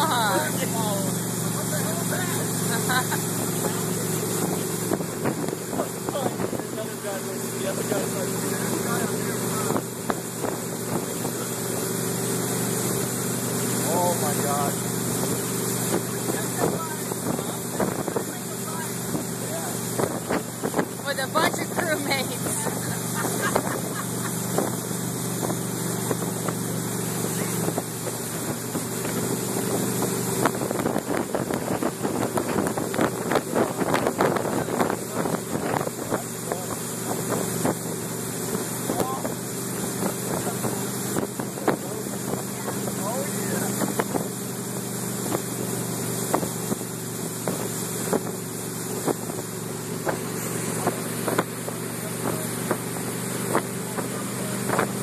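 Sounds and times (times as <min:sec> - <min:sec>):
wind buffeting microphone: 0:00.0 - 0:07.6, 0:15.2 - 0:44.5
motorboat engine running: 0:00.0 - 0:55.0
water rushing in wake: 0:00.0 - 0:55.0.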